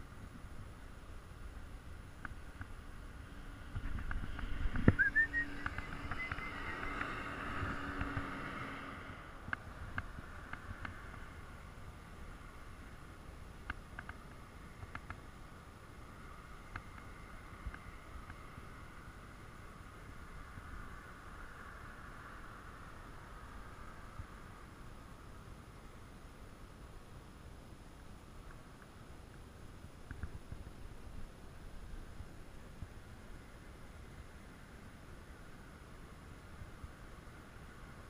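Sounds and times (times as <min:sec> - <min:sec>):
faint ticks: 0:01.5 - 0:02.8, 0:03.7 - 0:08.7, 0:09.4 - 0:11.4, 0:13.6 - 0:15.3, 0:16.6 - 0:18.7, 0:28.0 - 0:30.7
wind buffeting microphone: 0:01.6 - 0:11.5
osprey whistled chirps: 0:04.9 - 0:07.0.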